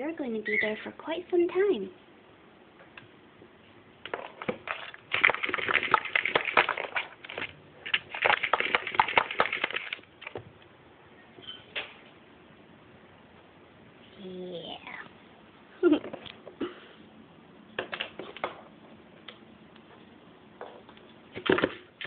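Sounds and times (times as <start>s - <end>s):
rabbit claws scratching plastic: 4.1s - 10.4s.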